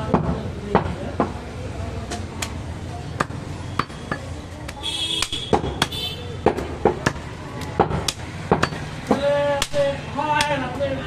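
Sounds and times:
blades chopping on wooden blocks: 3.2s - 10.6s.

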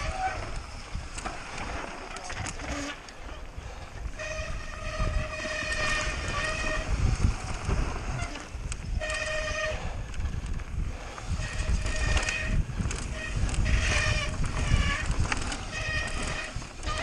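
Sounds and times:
low rumble of bike riding: 0.0s - 17.0s
bike disc brakes squealing: 2.1s - 3.4s, 4.1s - 7.4s, 8.0s - 10.4s, 11.3s - 17.0s.

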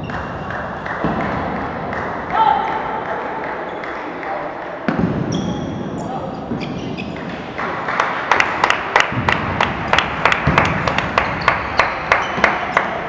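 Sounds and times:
people applauding: 0.0s - 4.4s, 7.4s - 13.0s.

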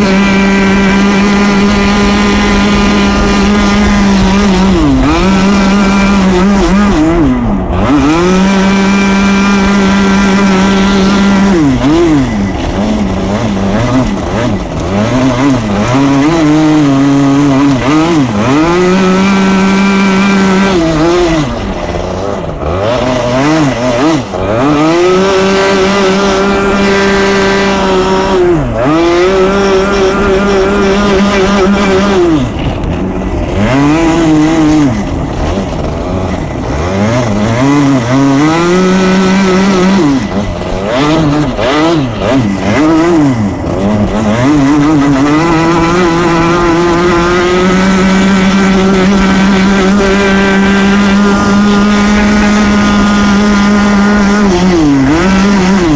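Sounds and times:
kart engine revving: 0.0s - 55.9s.

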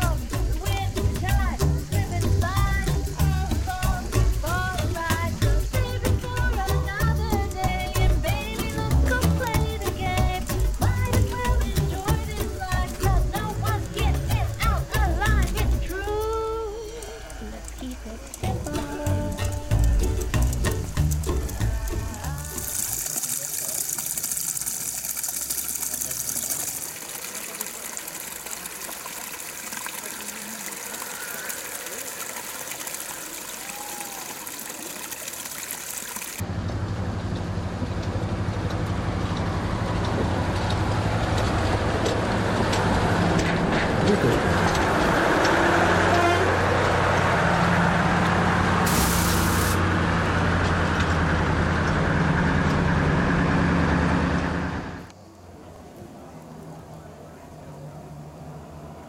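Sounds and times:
stream water rushing: 0.0s - 36.5s, 40.8s - 50.6s
model locomotive engine drone: 36.4s - 55.6s
short hiss: 48.9s - 49.8s.

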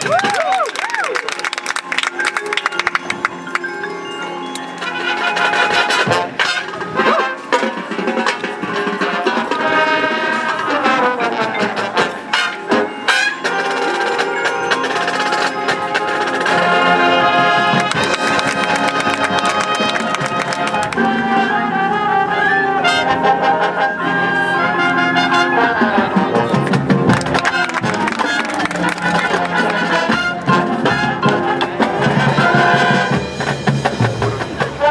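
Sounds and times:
marching band playing: 1.2s - 34.9s
mallet keyboards: 1.3s - 21.3s, 26.4s - 32.5s
brass chords: 1.8s - 34.9s
percussion hits: 17.6s - 21.2s, 26.6s - 31.0s.

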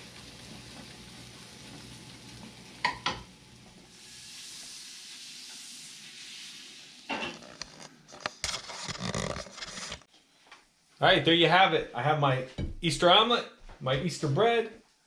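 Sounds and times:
omelet sizzling in a pan: 0.0s - 8.1s.

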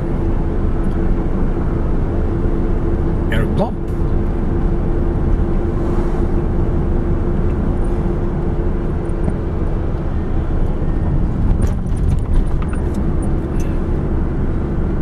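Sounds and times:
car road and engine rumble: 0.0s - 15.0s.

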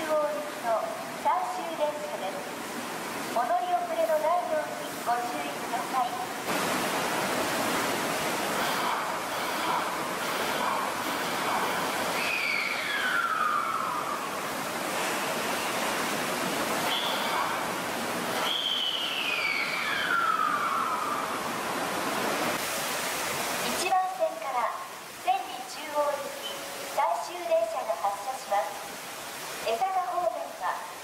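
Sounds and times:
train air hiss: 8.3s - 13.3s.

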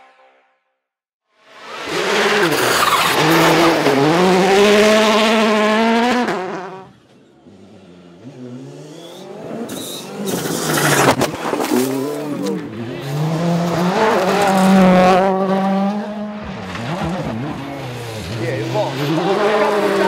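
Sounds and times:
rally car engine revving: 1.5s - 20.0s.

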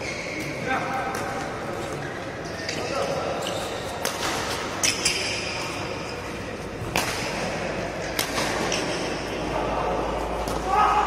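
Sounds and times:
racket hitting shuttlecock: 6.8s - 9.1s.

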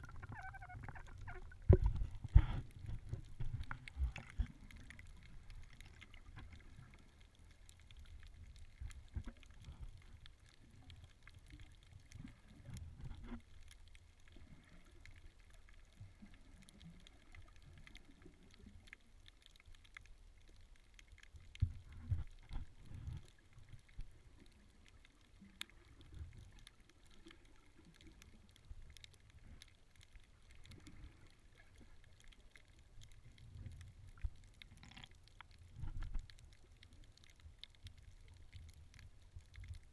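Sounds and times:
faint clicks: 0.0s - 39.9s
underwater rumble of moving water: 0.0s - 39.9s
underwater thumps: 0.4s - 3.7s.

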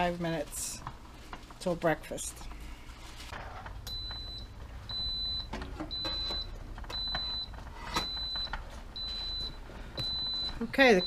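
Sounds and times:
pressure cooker beeping: 3.9s - 11.0s.

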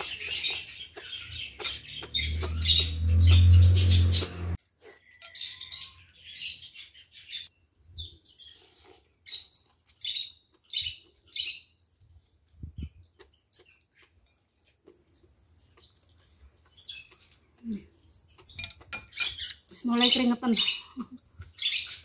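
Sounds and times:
chewing: 12.2s - 19.7s.

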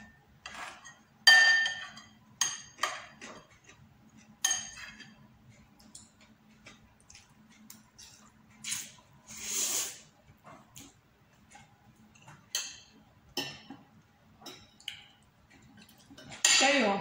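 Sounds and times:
cutlery clinking on ceramic bowl: 0.0s - 3.8s, 4.4s - 5.2s, 12.2s - 13.8s, 14.4s - 14.8s
slurp of noodles: 8.7s - 10.1s.

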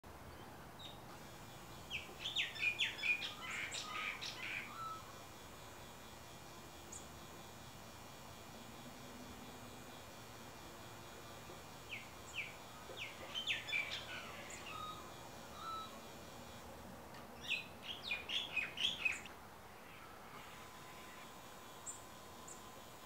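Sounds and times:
birds chirping: 0.3s - 5.1s, 11.9s - 16.6s, 17.4s - 20.1s.

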